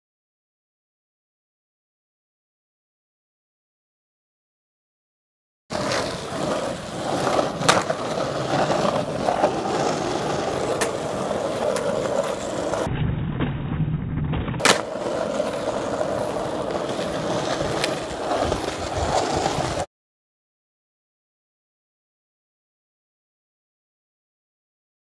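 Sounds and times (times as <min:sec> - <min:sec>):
skateboard popping and landing: 0:05.7 - 0:19.9
skateboard wheels rolling on asphalt: 0:05.7 - 0:19.9.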